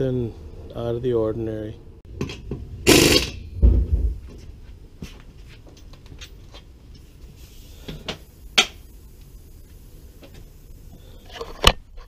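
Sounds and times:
heavy low thumps: 3.4 - 4.4.

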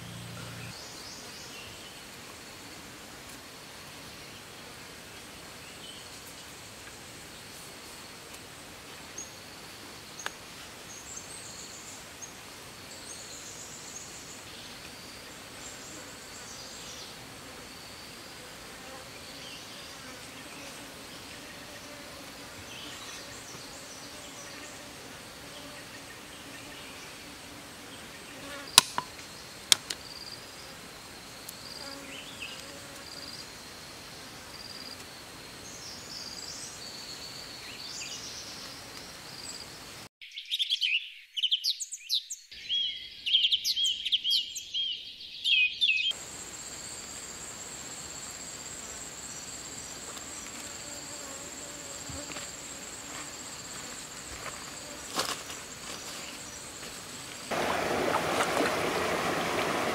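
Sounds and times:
insects buzzing: 0.0 - 40.1, 46.1 - 59.9
high insect trill: 46.1 - 59.9.

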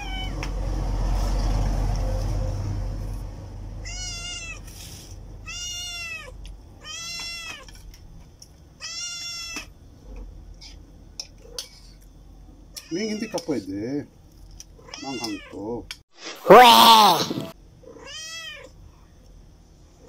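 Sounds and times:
cat meowing: 0.0 - 0.3, 3.8 - 4.7, 5.4 - 7.6, 14.8 - 15.6, 16.5 - 18.7.

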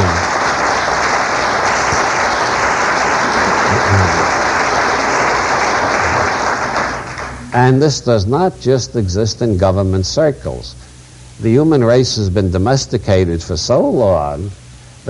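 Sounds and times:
audience applauding: 0.0 - 7.6
person calling out: 3.7 - 4.2.

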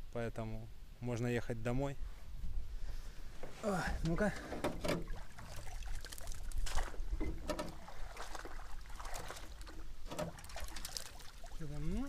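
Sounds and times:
knocks and rustles in boat: 3.3 - 11.2
water splashing: 4.2 - 12.0.

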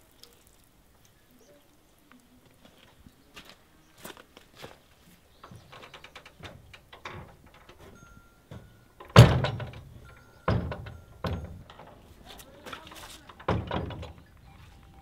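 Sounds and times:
soft footsteps: 2.1 - 6.7, 14.2 - 15.0
wooden door banging: 5.4 - 12.1, 13.3 - 14.4
door rattle: 5.4 - 14.4.

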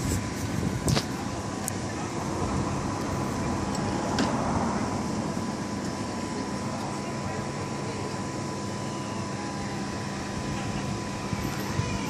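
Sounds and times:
wash of noise: 0.0 - 7.9
low mechanical hum: 0.0 - 12.0.

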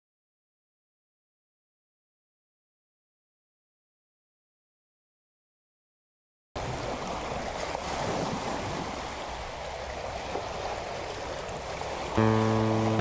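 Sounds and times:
sea waves on the shore: 6.6 - 13.0
acoustic guitar music: 12.1 - 13.0.

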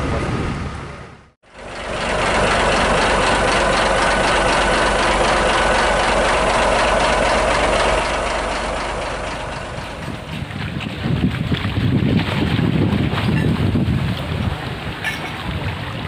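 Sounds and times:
diesel engine running: 0.0 - 11.5.

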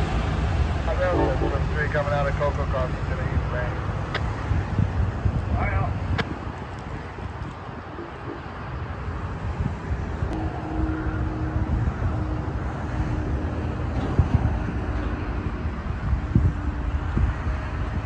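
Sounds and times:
faint steady tone: 0.9 - 1.8.

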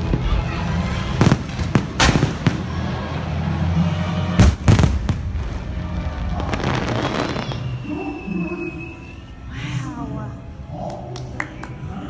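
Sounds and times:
fireworks booming: 0.0 - 3.0, 4.3 - 7.9
fireworks crackling: 0.0 - 3.6, 4.4 - 7.9.

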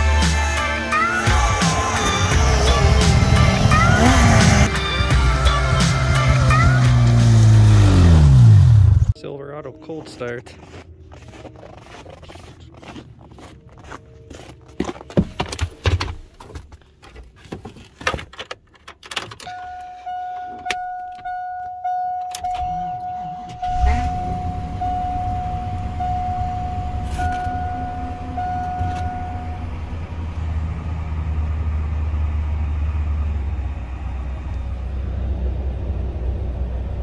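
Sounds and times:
engine cranking and starting: 1.0 - 9.1, 22.4 - 31.6
engine idling high: 1.0 - 9.1, 23.2 - 37.0
dashboard chime dinging: 19.4 - 30.2.

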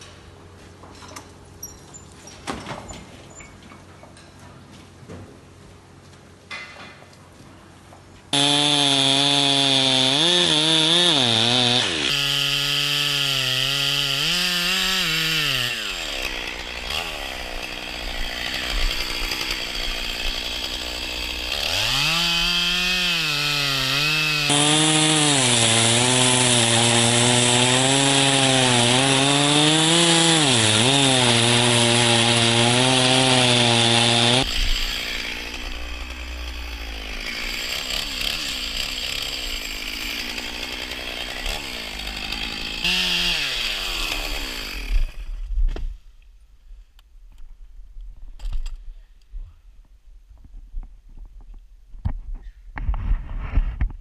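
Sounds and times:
chainsaw cutting tree trunk: 8.3 - 45.4.

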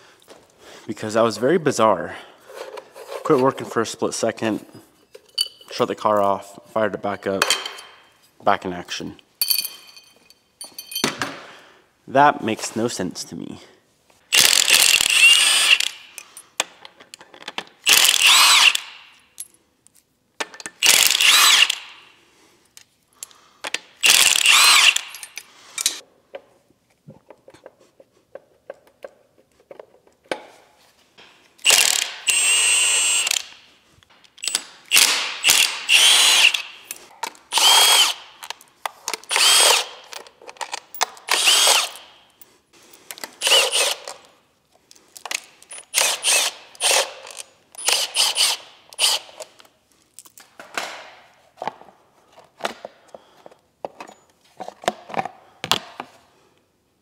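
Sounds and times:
impact wrench bursts: 14.3 - 16.1, 17.8 - 19.1, 20.8 - 22.0, 24.0 - 25.4, 31.6 - 33.6, 34.4 - 36.9, 37.5 - 38.4, 39.3 - 40.0, 41.3 - 42.1, 43.4 - 44.2, 45.7 - 49.4.

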